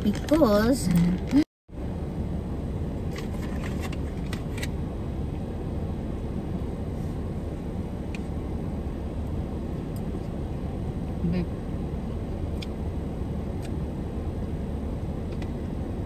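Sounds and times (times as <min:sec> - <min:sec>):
low rumble in car cabin: 0:00.0 - 0:16.0.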